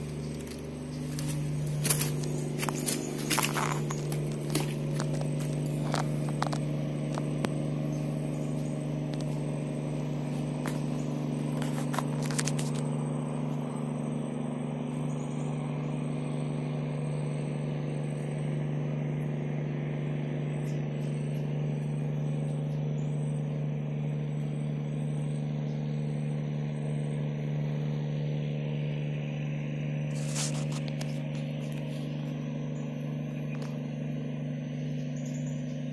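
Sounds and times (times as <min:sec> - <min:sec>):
rustling or scraping: 0:00.0 - 0:07.4, 0:10.4 - 0:12.9, 0:30.1 - 0:32.1
steady low hum: 0:00.0 - 0:35.9.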